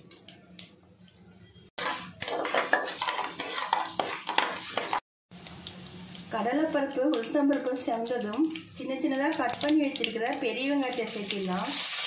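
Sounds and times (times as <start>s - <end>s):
metal ladle scraping a pot: 1.8s - 5.0s.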